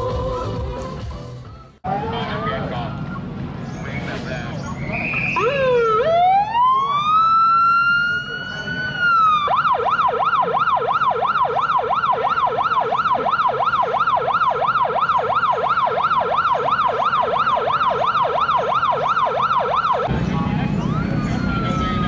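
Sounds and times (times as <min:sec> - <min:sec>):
police siren yelping: 0:05.2 - 0:22.0.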